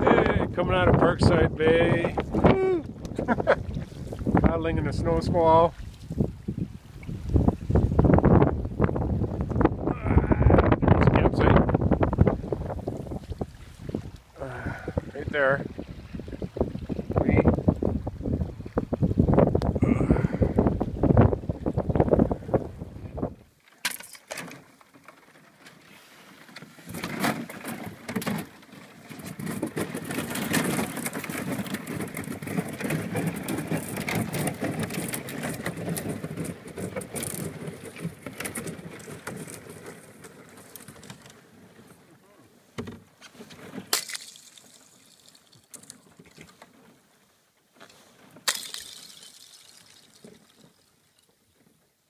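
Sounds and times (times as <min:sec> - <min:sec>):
ice crackling against canoe hull: 0:20.6 - 0:51.8.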